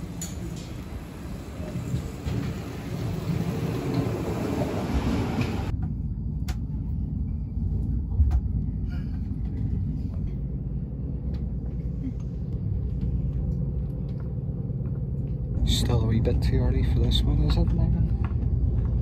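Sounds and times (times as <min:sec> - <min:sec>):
train pulling into station: 0:00.0 - 0:05.7
train rumble inside carriage: 0:00.0 - 0:19.0.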